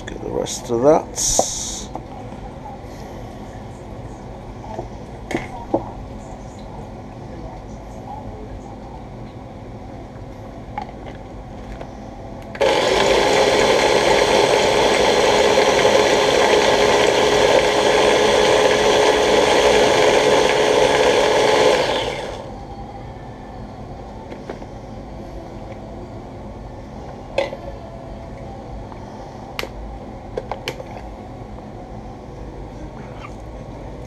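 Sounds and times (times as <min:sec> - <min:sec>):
electric food chopper running: 0:12.6 - 0:22.5.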